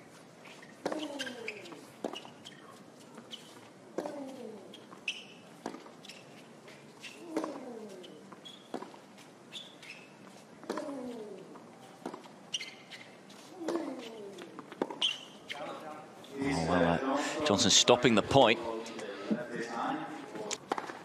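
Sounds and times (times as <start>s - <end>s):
sneaker squeaks: 0.0s - 16.7s
racket hitting tennis ball: 0.6s - 2.6s, 3.4s - 6.4s, 7.0s - 9.2s, 10.1s - 12.4s, 13.5s - 15.2s, 20.7s - 21.0s.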